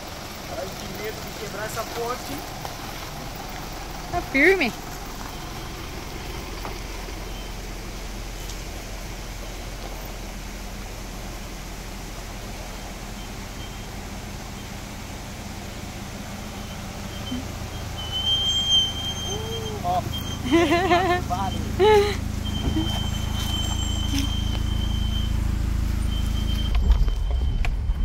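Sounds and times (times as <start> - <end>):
suv engines crawling: 0.0 - 28.0
thin high squeal: 16.6 - 20.5, 22.5 - 27.3.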